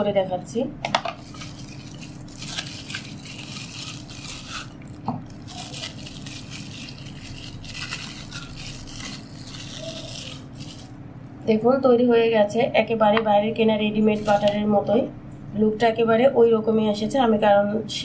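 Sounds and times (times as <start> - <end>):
steady low hum: 0.0 - 18.0
plastic wrap crinkling: 1.1 - 11.4, 14.0 - 14.6.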